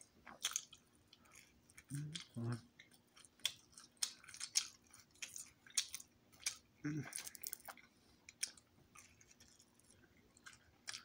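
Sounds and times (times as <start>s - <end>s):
wet chewing: 0.0s - 11.0s
short low vocal sounds: 1.9s - 2.7s, 6.8s - 7.1s.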